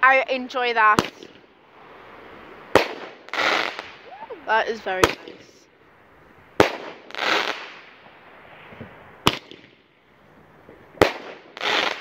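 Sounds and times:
fireworks bangs: 0.8s - 5.7s, 6.4s - 12.0s.

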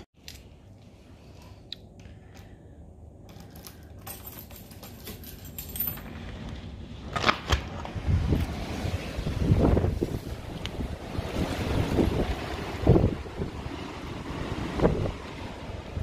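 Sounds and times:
gusty wind buffeting microphone: 7.7s - 16.0s.

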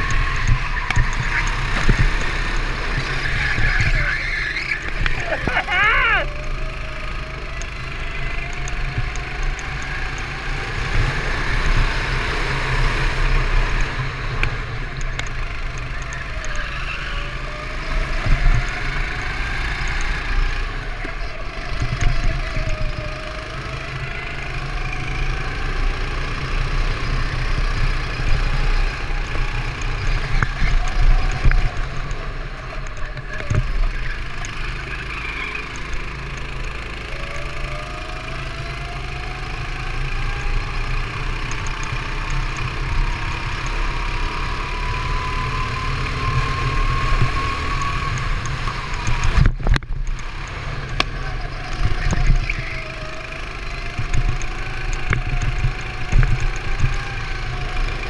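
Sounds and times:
wind rumble: 0.0s - 5.8s
go-kart engine revving: 0.0s - 58.0s.

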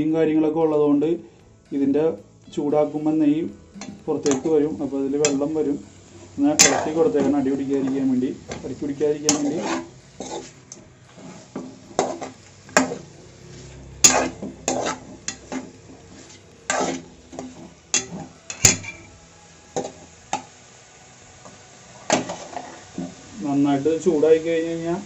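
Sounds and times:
metal spoon scraping a pan: 3.8s - 20.5s, 21.4s - 23.3s.

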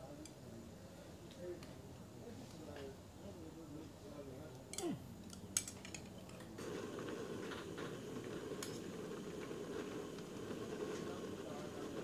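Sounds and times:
broth cooking low rush: 6.6s - 12.0s.

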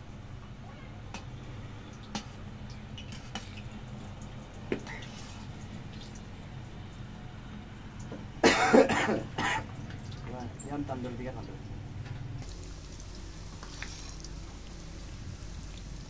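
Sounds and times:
low steady background hum: 0.0s - 16.0s.

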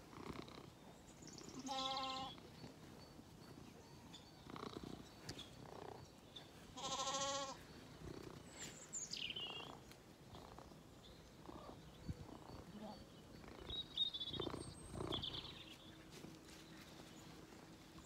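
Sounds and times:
lamb bleating: 1.6s - 2.4s, 6.8s - 7.6s.

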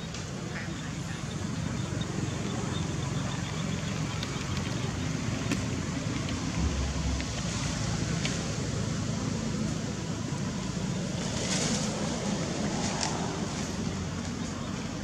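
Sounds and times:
fluctuating low rumble: 5.8s - 9.6s.

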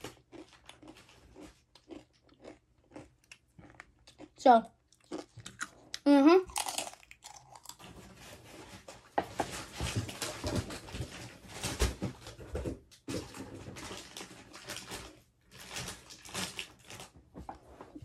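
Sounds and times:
potato chips crunching: 0.0s - 7.9s.

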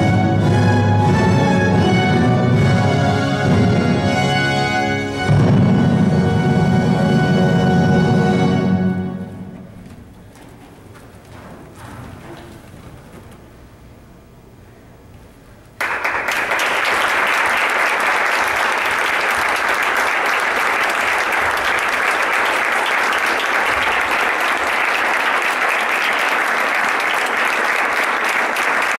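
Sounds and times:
audience applauding: 15.8s - 29.0s.

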